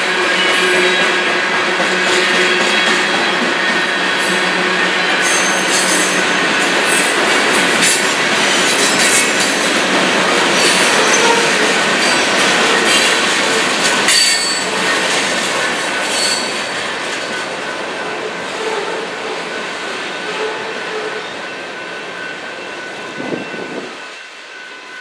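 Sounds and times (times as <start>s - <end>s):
steel wheels rushing on rail: 0.0s - 25.0s
high wheel squeals: 4.3s - 7.8s, 14.1s - 17.5s.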